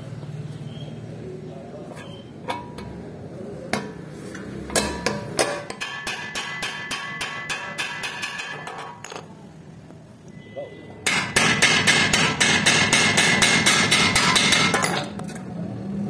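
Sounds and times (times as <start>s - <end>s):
hammer striking metal rivet: 4.6s - 9.3s, 11.1s - 15.1s.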